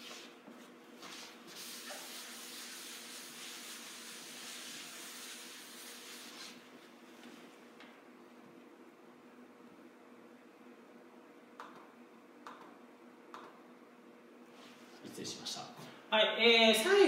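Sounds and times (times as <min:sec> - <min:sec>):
eraser rubbing on whiteboard: 0:01.0 - 0:06.6.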